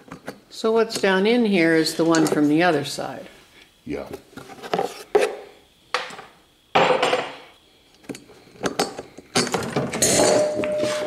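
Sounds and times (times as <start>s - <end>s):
metal parts clanking: 8.8s - 10.7s
metal ringing note: 10.0s - 11.0s.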